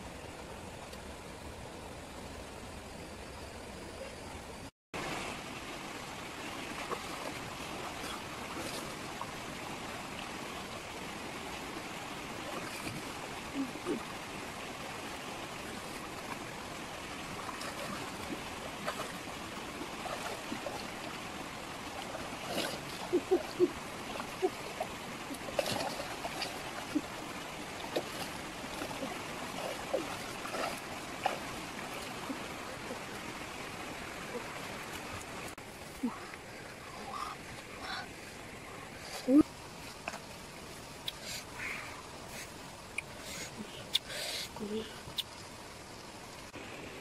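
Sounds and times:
rocky stream flowing: 4.6 - 47.0
splashes from wading: 6.4 - 10.8, 11.6 - 35.6.

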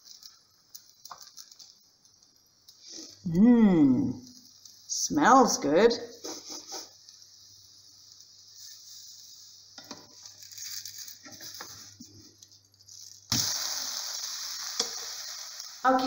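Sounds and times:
batter sizzling in frying pan: 0.0 - 16.0
loud steady hiss: 13.2 - 16.0.

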